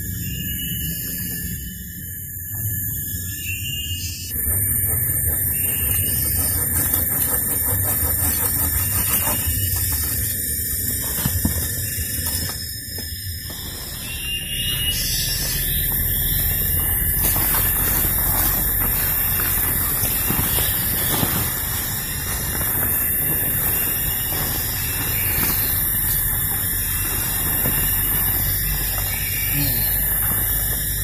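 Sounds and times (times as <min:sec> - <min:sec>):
plastic tarp rustling and crackling: 0:16.5 - 0:28.5.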